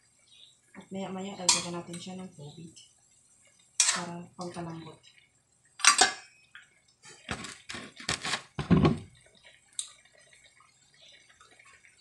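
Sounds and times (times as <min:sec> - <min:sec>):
metal spatula clanking on wok: 0:01.4 - 0:02.0, 0:03.8 - 0:04.1, 0:05.8 - 0:06.2.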